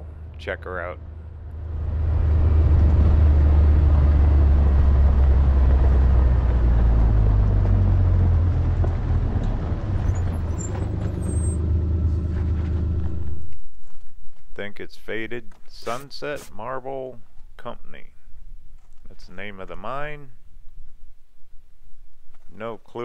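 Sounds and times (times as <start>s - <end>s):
vehicle rolling over dirt track: 1.5s - 14.1s.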